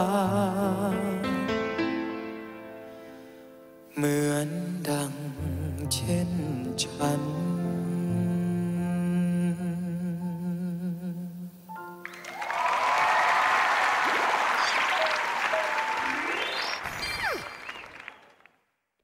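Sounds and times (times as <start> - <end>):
applause: 12.0 - 18.6.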